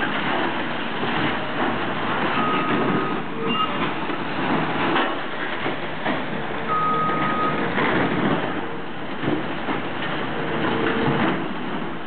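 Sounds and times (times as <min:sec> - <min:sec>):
excavator engine under load: 0:00.0 - 0:12.0
short high beep: 0:02.4 - 0:03.8, 0:06.7 - 0:07.6.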